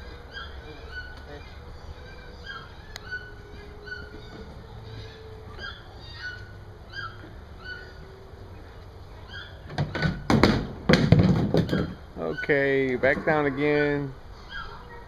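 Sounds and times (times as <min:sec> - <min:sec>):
faint steady hum: 0:00.0 - 0:15.0
loud knocks or clatters: 0:09.7 - 0:12.0.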